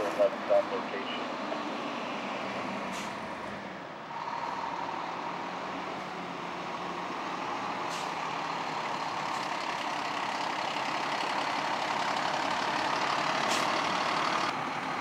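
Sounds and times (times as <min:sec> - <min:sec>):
fire engine diesel engine running: 0:04.1 - 0:15.0
air brake hiss: 0:07.9 - 0:08.1.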